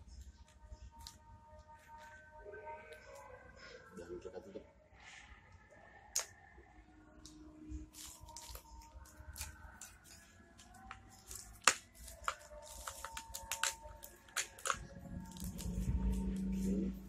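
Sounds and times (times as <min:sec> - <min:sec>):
low steady hum: 0:12.8 - 0:17.0.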